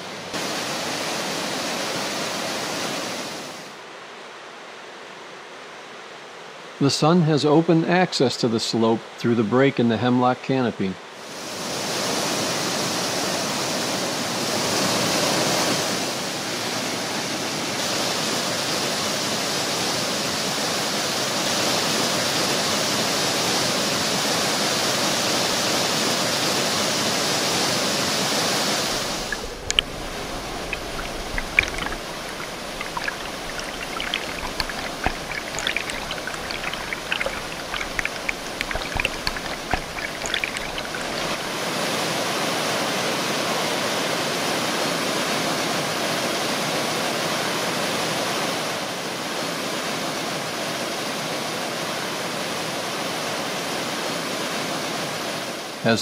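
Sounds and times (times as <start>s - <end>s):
water rushing over rocks: 0.0s - 3.8s, 28.6s - 42.4s
water splashing and dripping: 28.9s - 41.6s.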